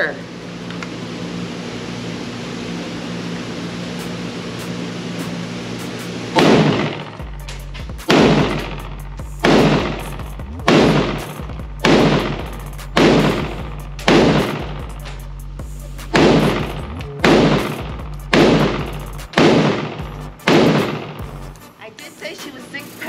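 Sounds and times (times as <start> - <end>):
gunshots echoing indoors: 8.1 - 14.9, 16.1 - 21.4.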